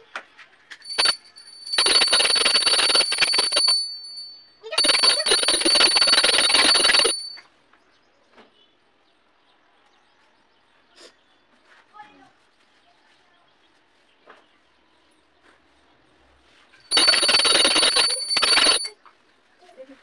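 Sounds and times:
bell ringing rapidly: 0.8 - 7.4, 16.9 - 18.9.

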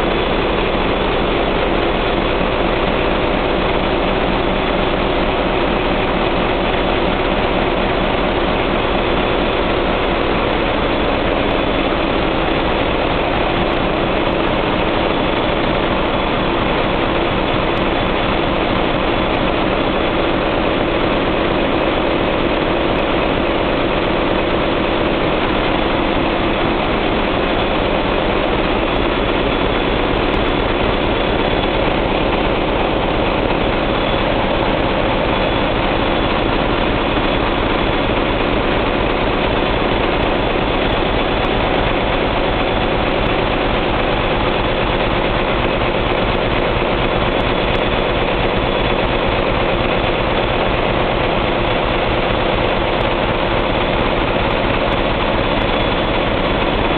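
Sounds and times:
diesel generator engines droning: 0.0 - 56.9.

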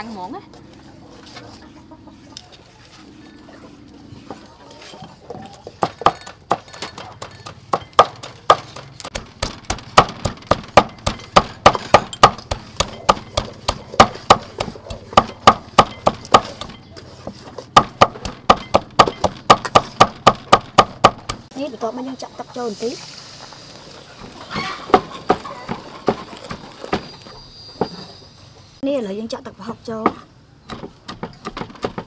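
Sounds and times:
cleaver chopping on wooden board: 5.8 - 16.7, 17.8 - 21.4.

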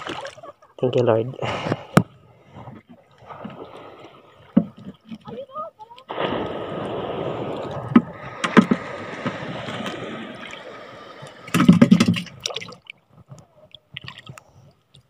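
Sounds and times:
fish splashing into water: 0.0 - 0.5, 6.1 - 13.0
water sloshing around kayak: 0.0 - 15.0.

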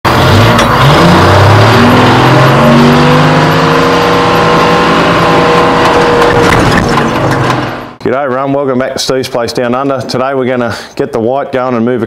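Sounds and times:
truck diesel engine revving: 0.1 - 8.0.

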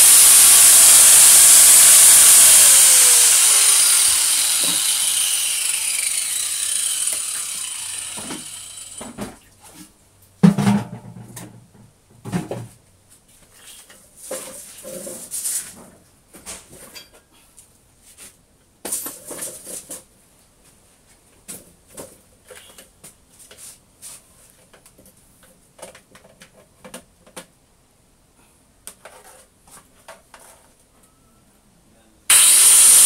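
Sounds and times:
motor-driven machine winding down: 0.0 - 9.0, 32.3 - 33.0.

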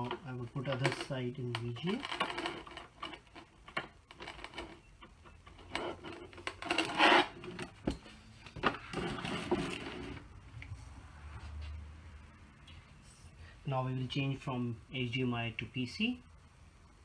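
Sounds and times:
cables rubbing: 0.0 - 7.8
loud scrape: 5.6 - 7.6, 8.8 - 10.3.

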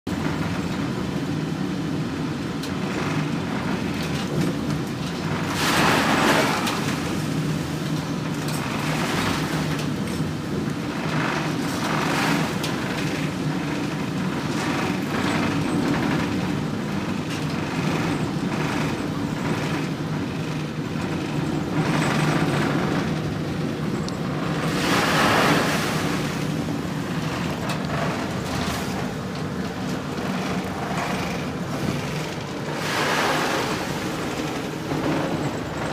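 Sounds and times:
ship engine droning: 0.1 - 35.9
water splashing over bow: 5.4 - 7.9, 24.4 - 35.9.

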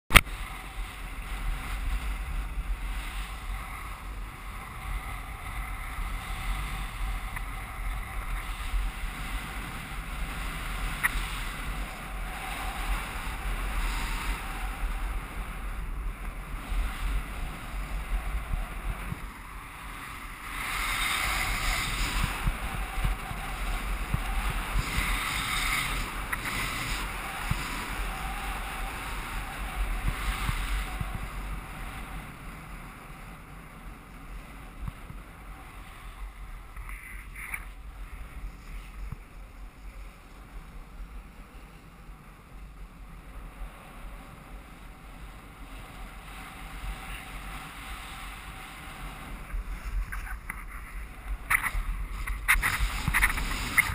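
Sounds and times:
wind on microphone: 0.1 - 53.9
skis hissing on snow: 0.4 - 32.2, 45.6 - 53.9.

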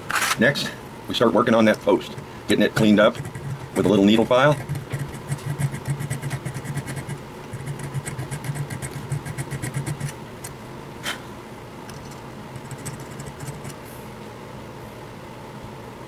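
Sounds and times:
needle file rasping on metal: 2.0 - 10.2, 12.6 - 13.8.

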